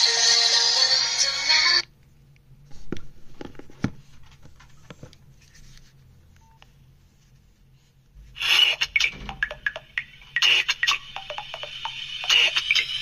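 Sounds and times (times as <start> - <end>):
music from phone loudspeaker: 0.0 - 1.9, 8.4 - 13.0.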